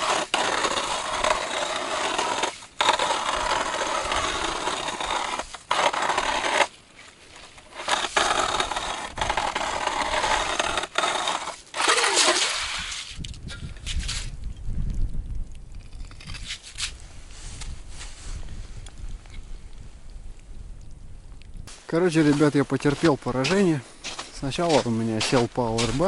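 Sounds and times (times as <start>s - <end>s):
ice auger grinding through ice: 0.0s - 13.2s.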